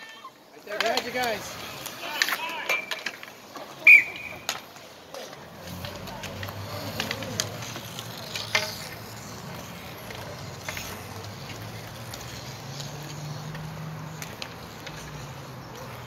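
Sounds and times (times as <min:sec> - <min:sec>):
sticks and skates clacking: 0:00.0 - 0:16.0.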